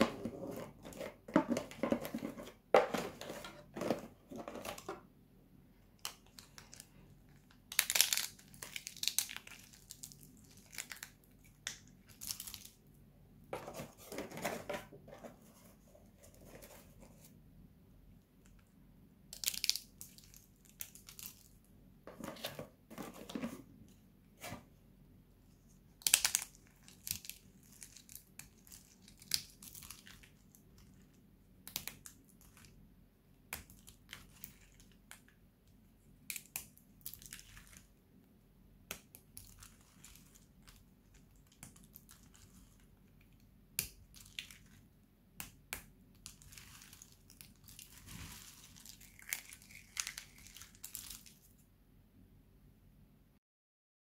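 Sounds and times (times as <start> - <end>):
bar soap cracking and crunching: 7.5 - 12.8, 26.0 - 30.8, 45.4 - 51.4.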